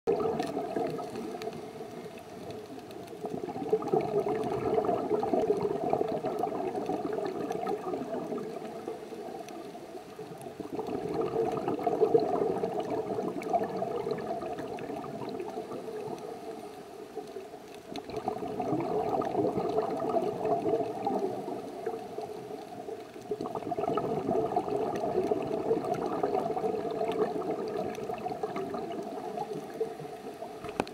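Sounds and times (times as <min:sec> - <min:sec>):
underwater regulator breathing bubbles: 0:03.2 - 0:08.7.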